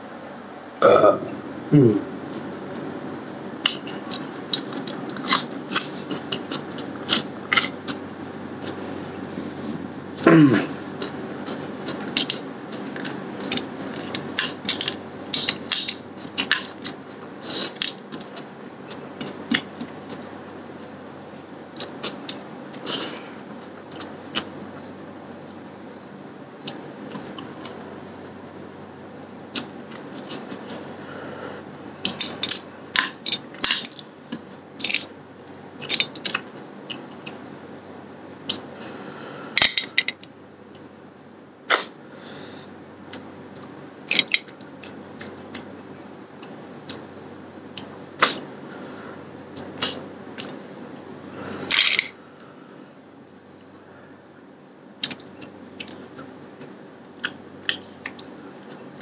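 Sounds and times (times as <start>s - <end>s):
low background hum: 0.0s - 59.0s
sucking sounds: 51.3s - 54.2s.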